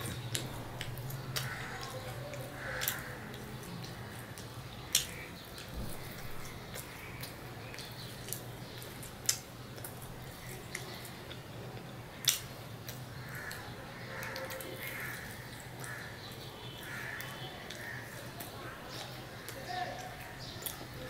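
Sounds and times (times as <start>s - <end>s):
person chewing: 0.0s - 13.6s.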